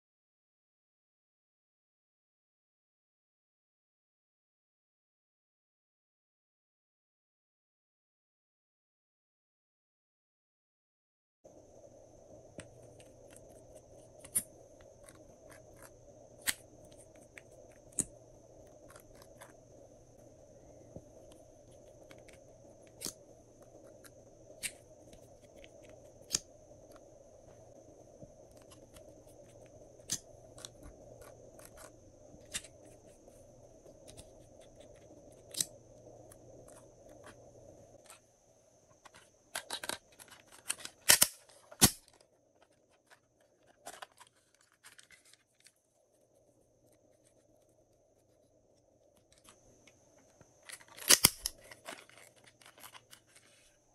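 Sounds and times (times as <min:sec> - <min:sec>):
faint steady hum: 0:11.5 - 0:53.9.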